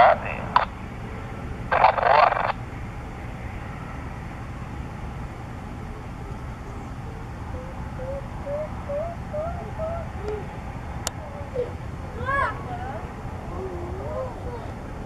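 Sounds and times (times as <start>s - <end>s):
radio static: 0.0s - 0.8s, 1.7s - 2.6s
helicopter rumble: 0.0s - 15.0s.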